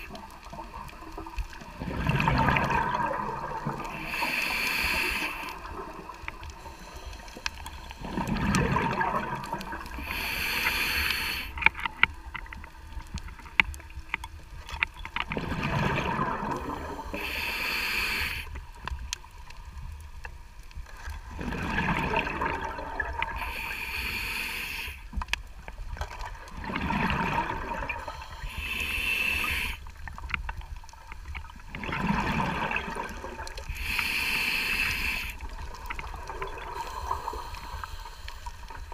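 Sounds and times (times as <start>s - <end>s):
exhaust bubbles gurgling: 0.0s - 4.4s, 8.0s - 10.2s, 15.3s - 17.3s, 21.2s - 23.5s, 26.2s - 28.3s, 31.4s - 33.8s
scuba regulator breathing underwater: 1.8s - 11.9s, 15.6s - 18.6s, 21.4s - 25.1s, 26.7s - 29.9s, 32.2s - 35.8s, 36.6s - 38.9s.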